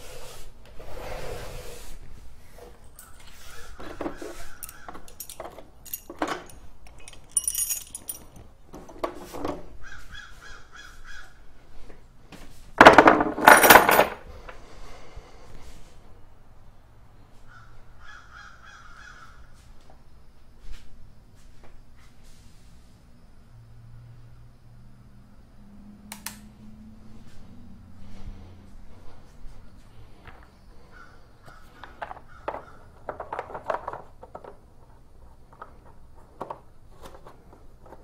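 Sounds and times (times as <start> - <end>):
metal tools clattering: 2.8 - 9.6, 12.8 - 14.3
metal hand tools clinking: 4.5 - 8.5.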